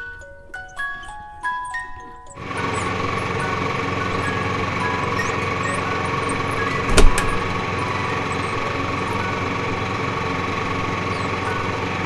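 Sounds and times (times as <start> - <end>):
mechanical hum: 0.0 - 12.0
sharp knock: 6.9 - 7.4.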